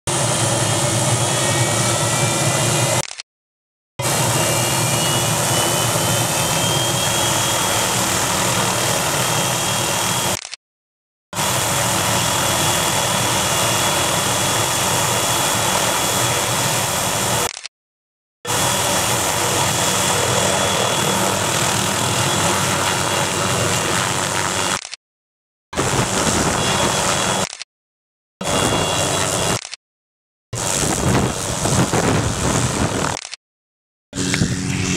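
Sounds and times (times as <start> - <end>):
helicopter turbine whine: 0.1 - 3.0, 4.0 - 10.4, 11.4 - 17.5, 18.5 - 24.8, 25.8 - 27.4, 28.4 - 29.6, 30.6 - 33.2, 34.2 - 34.9
deep engine rumble: 34.2 - 34.9.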